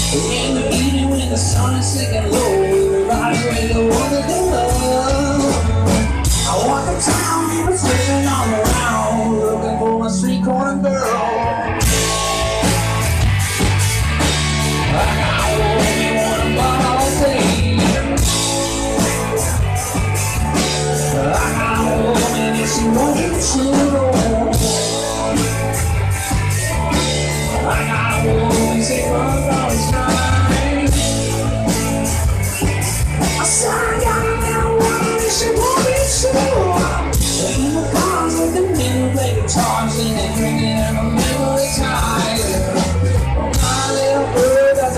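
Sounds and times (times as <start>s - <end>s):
drum kit: 0.0s - 44.9s
electric guitars: 0.0s - 44.9s.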